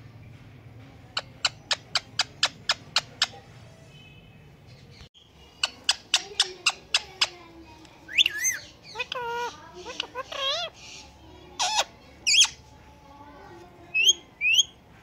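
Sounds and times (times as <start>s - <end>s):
parrot calling: 5.5s - 7.4s, 8.0s - 12.6s, 13.9s - 14.8s.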